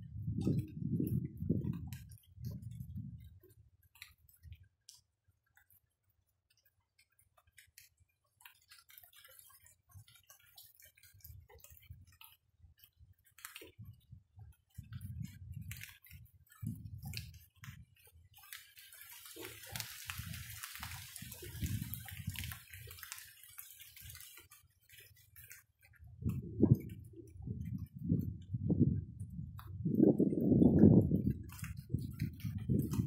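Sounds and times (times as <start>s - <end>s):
raindrops tapping: 14.7s - 28.9s, 29.5s - 33.0s
hiss of falling rain: 18.5s - 24.5s.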